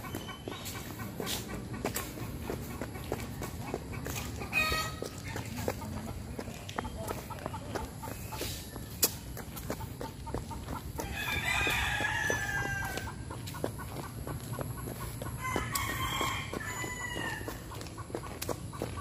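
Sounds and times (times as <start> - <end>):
rooster crowing: 11.0 - 13.2, 15.4 - 17.6.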